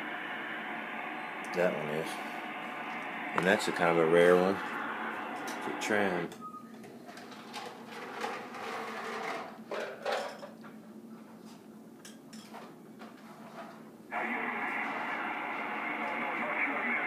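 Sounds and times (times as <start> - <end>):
static-laden radio audio: 0.0 - 6.4, 14.1 - 17.0.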